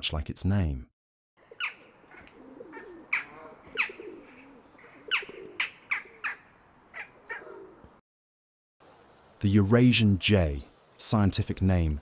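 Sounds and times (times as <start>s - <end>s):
jackdaw calling: 1.4s - 7.8s.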